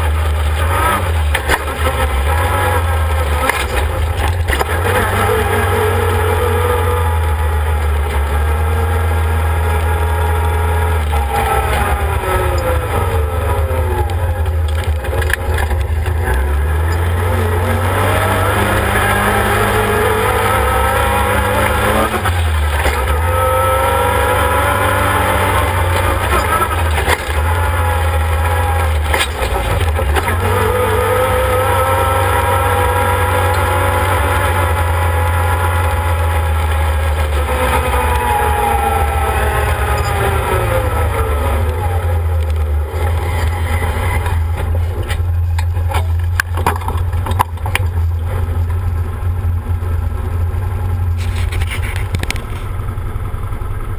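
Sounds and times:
engine running: 0.0 - 53.9.

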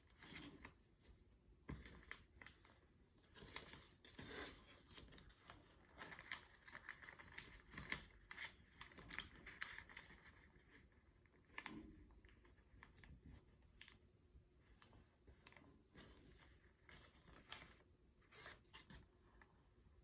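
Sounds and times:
paper rustling and crinkling: 0.0 - 14.0, 14.6 - 19.7
fingers scraping paper folds: 3.4 - 11.7.

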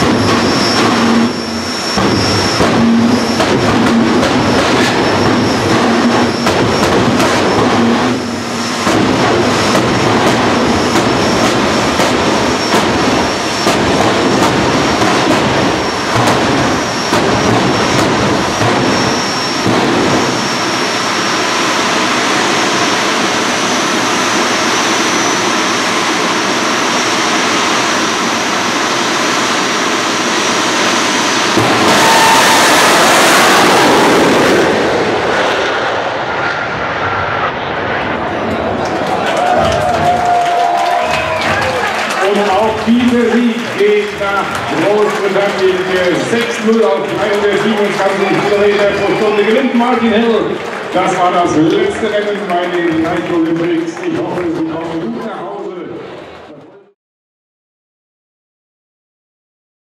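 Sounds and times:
afterburner pops and bangs: 0.0 - 20.9, 31.5 - 32.0
jet engines roaring: 0.0 - 56.9
high whistle: 31.7 - 33.0.

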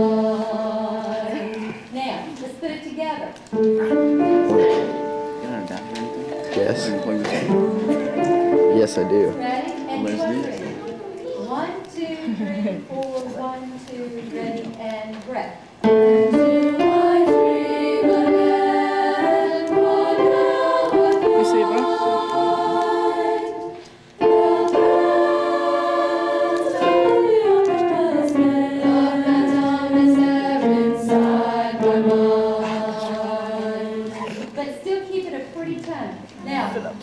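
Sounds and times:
choir singing in parts: 0.0 - 1.8, 4.3 - 10.8, 15.8 - 34.5.

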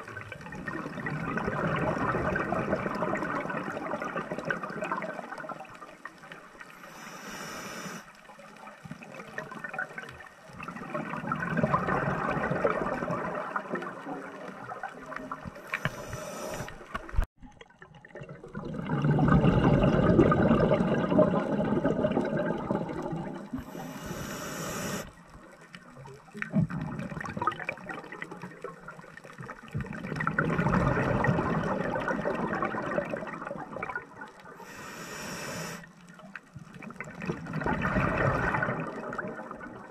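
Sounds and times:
diver inhaling through regulator: 6.8 - 8.1, 15.6 - 17.0, 23.6 - 25.2, 34.6 - 35.9
bubbling exhalation: 18.2 - 25.1, 26.4 - 28.2, 29.9 - 34.0, 37.0 - 39.9.

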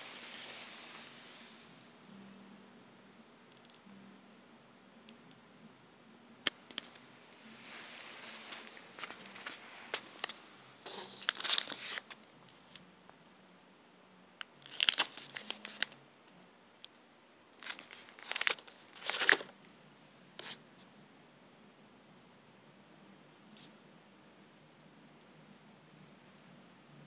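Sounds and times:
paper or plastic rustling: 7.6 - 12.2, 14.6 - 16.0, 17.6 - 19.5.

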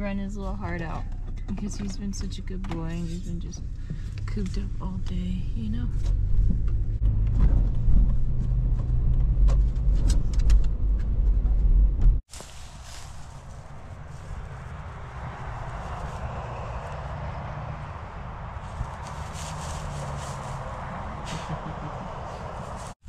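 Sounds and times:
car engine and road rumble: 0.0 - 23.0
wind buffeting microphone: 13.0 - 23.0.

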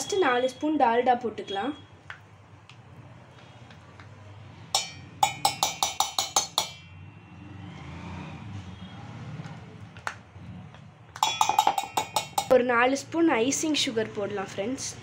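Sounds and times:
spoon clinking on steel tumbler: 4.8 - 6.8, 11.2 - 12.5.

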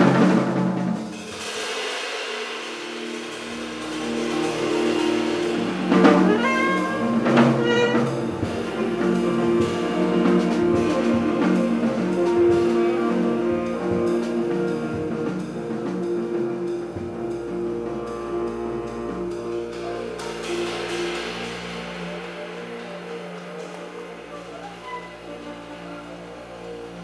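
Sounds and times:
jazz band playing: 0.0 - 27.0
cymbal crashes: 1.1 - 13.0, 20.0 - 25.9.

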